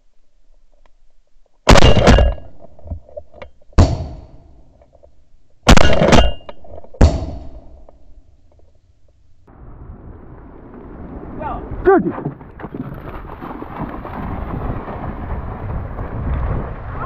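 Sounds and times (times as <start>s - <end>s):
shotgun blasts with ringing tail: 1.7s - 2.5s, 3.8s - 4.5s, 5.7s - 7.8s.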